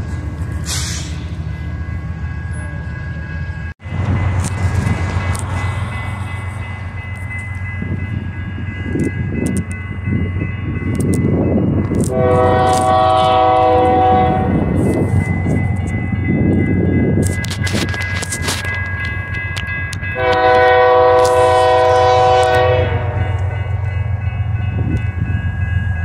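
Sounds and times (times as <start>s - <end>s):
diesel locomotive engine rumble: 0.0s - 26.0s
multi-chime air horn blast: 20.2s - 23.5s.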